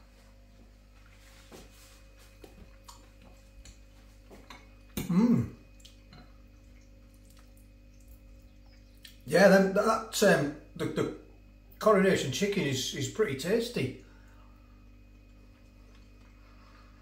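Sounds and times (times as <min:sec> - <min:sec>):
short vocal sound: 0:05.0 - 0:05.6.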